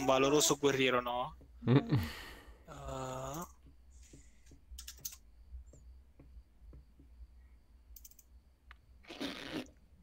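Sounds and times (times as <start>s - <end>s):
computer keyboard keystrokes: 4.8s - 5.2s, 7.9s - 8.3s.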